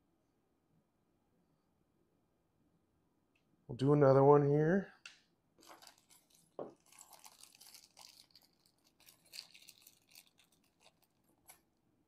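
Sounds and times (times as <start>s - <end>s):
wires being moved about: 5.6s - 11.6s
plastic parts rustling and crinkling: 5.6s - 11.7s.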